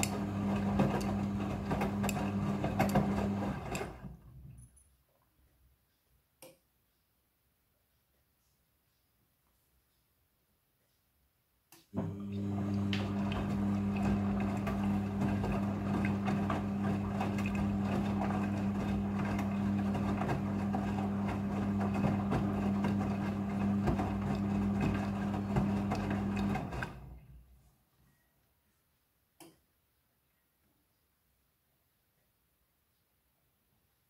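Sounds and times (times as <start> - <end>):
wet laundry tumbling: 0.0 - 4.3, 12.0 - 27.3
washing machine motor hum: 0.0 - 4.4, 11.9 - 27.5.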